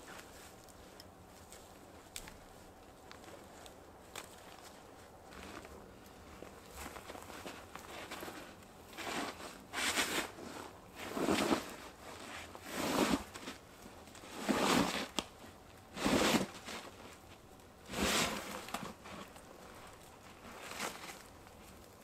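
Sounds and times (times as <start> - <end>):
backpack scraping against stone: 6.7 - 13.6, 14.2 - 15.1, 15.9 - 17.2, 17.9 - 21.3.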